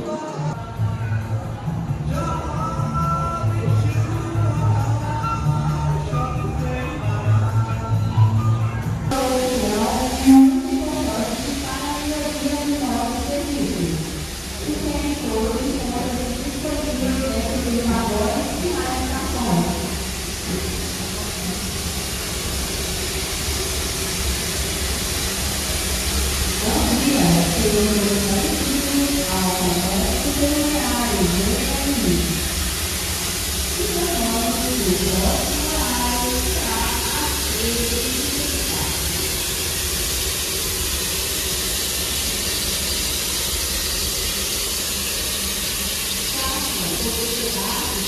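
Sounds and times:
voices: 0:00.0 - 0:21.8, 0:26.6 - 0:32.6, 0:33.7 - 0:39.4, 0:46.3 - 0:48.0
steam locomotive hissing: 0:00.0 - 0:48.0.

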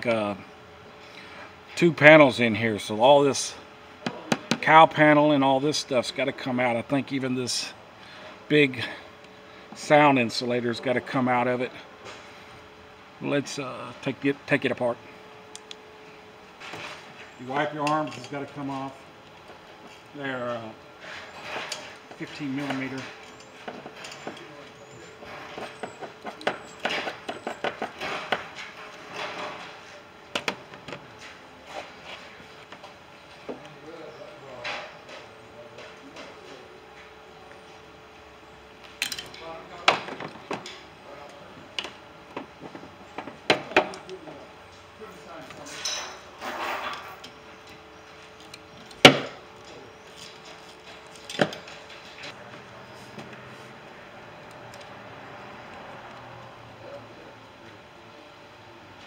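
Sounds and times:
hand tools clicking and knocking: 0:21.4 - 0:29.6.

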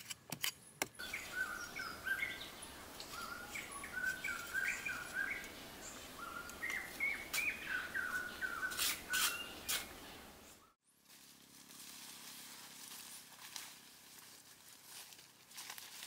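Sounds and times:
bird singing whistled notes: 0:01.0 - 0:09.7
short scraping noises: 0:08.6 - 0:10.0.

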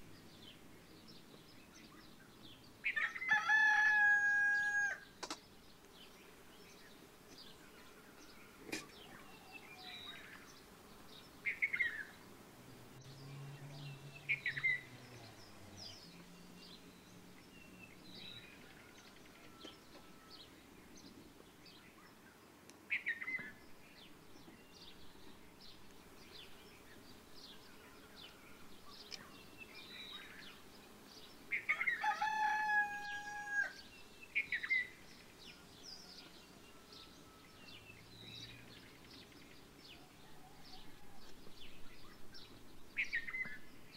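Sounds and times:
small birds chirping: 0:00.0 - 0:43.9
rooster crowing: 0:03.0 - 0:05.1, 0:18.4 - 0:20.5, 0:31.7 - 0:33.9, 0:35.6 - 0:37.8, 0:40.1 - 0:41.4.

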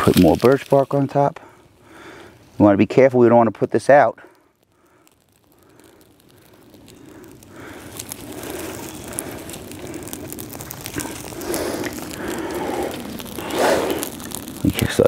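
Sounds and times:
bark and twigs rustling: 0:00.0 - 0:02.6, 0:04.2 - 0:15.0
fire crackling: 0:00.0 - 0:15.0.

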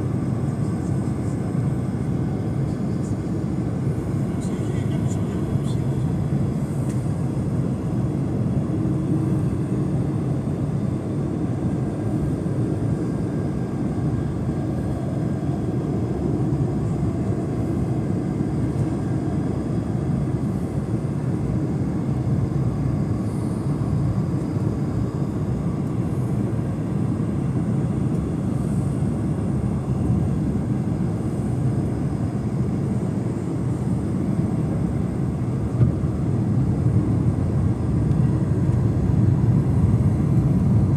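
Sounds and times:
airplane cabin drone: 0:00.0 - 0:40.9.

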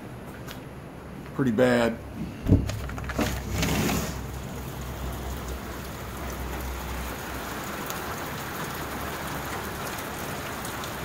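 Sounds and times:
heavy rain falling: 0:02.5 - 0:11.0.

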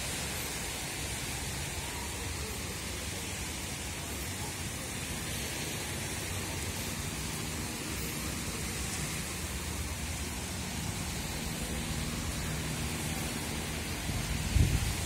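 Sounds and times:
wind buffeting microphone: 0:14.0 - 0:15.0.

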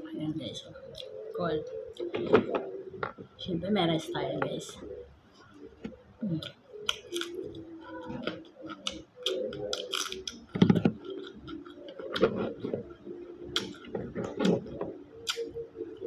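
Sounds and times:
sucking and chewing: 0:05.8 - 0:16.0.

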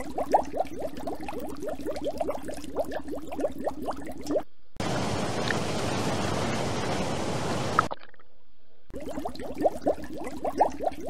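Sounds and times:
underwater bubbling gurgles: 0:00.0 - 0:04.4, 0:08.9 - 0:11.0
water sloshing and splashing: 0:00.0 - 0:11.0.

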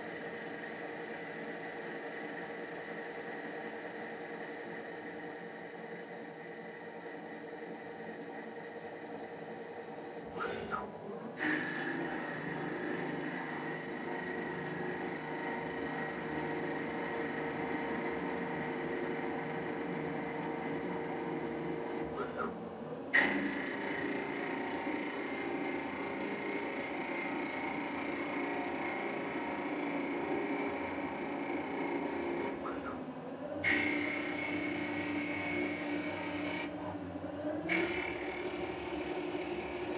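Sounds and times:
machine whine: 0:00.0 - 0:39.9
lathe cutting metal bar: 0:11.4 - 0:22.4, 0:23.2 - 0:32.9, 0:33.6 - 0:36.7, 0:37.7 - 0:39.9.

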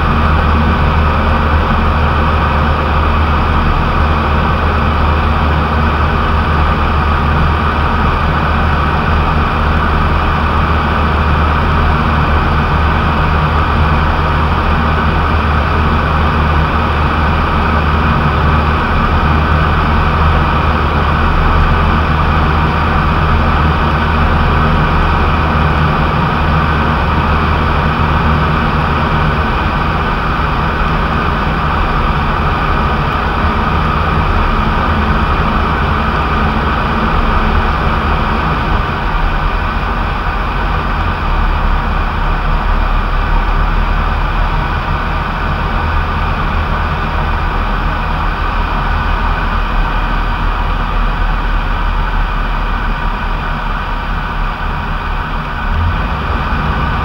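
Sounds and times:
aircraft engine and propeller drone: 0:00.0 - 0:57.0.

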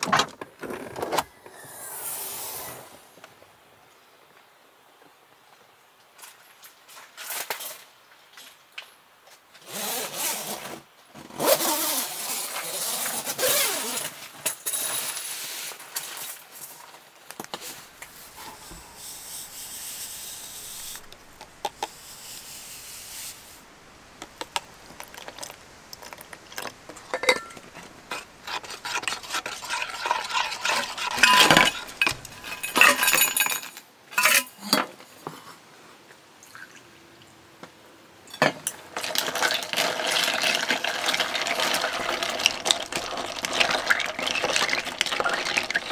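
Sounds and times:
powder pouring into mug: 0:24.3 - 0:26.8, 0:39.0 - 0:45.9
ice cubes clinking in steel cup: 0:28.2 - 0:34.6, 0:39.0 - 0:45.9
rustling packet: 0:39.0 - 0:45.9.

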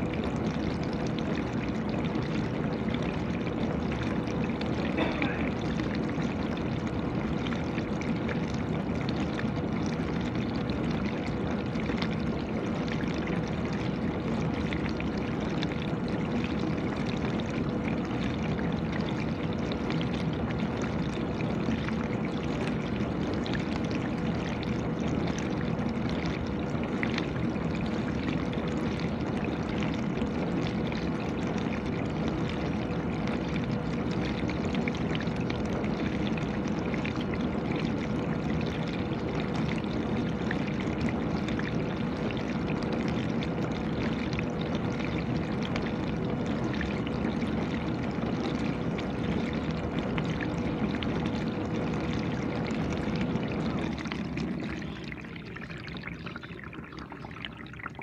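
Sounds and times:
dishwasher hum: 0:04.7 - 0:05.9.

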